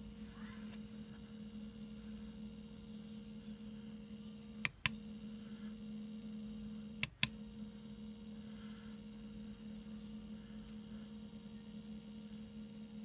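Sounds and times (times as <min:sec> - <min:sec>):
stepper motor humming: 0:00.0 - 0:13.0
sharp clicks: 0:04.6 - 0:05.0, 0:07.0 - 0:07.4.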